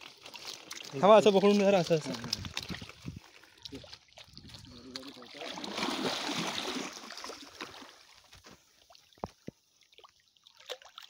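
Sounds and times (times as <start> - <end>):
water splashing against boat: 0.0 - 8.1.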